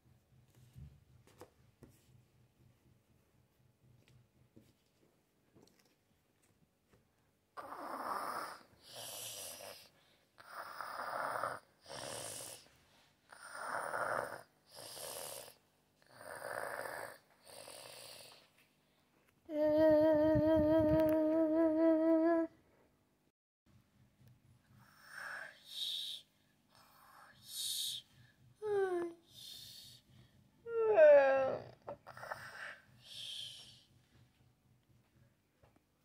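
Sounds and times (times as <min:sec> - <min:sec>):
person fake snoring: 0:07.6 - 0:12.7, 0:13.3 - 0:18.4, 0:30.8 - 0:33.8
wavering held vocal tone: 0:19.5 - 0:22.6, 0:30.7 - 0:33.7.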